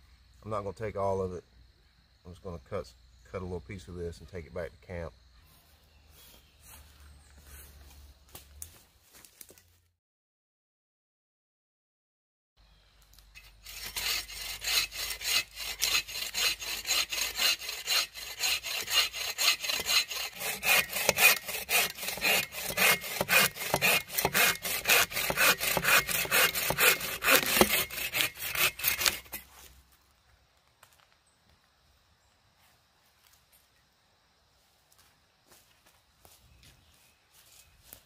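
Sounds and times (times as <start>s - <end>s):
hand saw cutting log: 13.4s - 29.5s.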